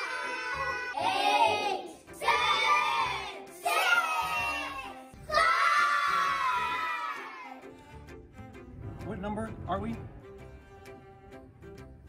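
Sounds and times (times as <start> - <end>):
children shouting together: 0.0 - 7.6.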